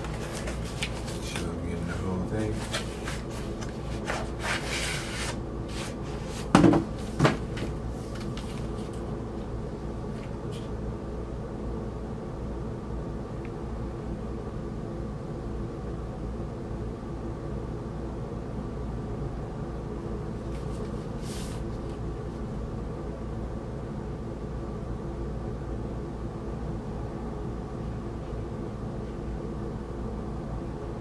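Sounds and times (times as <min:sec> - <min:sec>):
cardboard scraping and rustling: 0:00.0 - 0:01.6, 0:02.3 - 0:09.0
steady low hum: 0:00.0 - 0:31.0.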